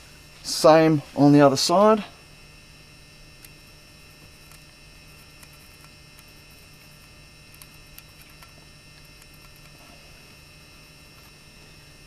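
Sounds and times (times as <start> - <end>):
low electrical hum: 0.0 - 12.0
pencil ticking on wood: 4.2 - 9.8.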